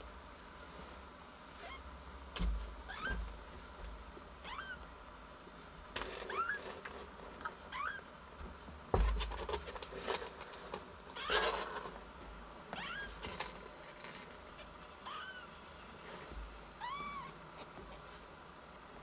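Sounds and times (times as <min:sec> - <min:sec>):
kittens mewing: 0:04.4 - 0:04.8, 0:12.8 - 0:13.3, 0:14.5 - 0:15.6, 0:16.8 - 0:18.0
rustling: 0:05.8 - 0:07.8, 0:08.5 - 0:18.3.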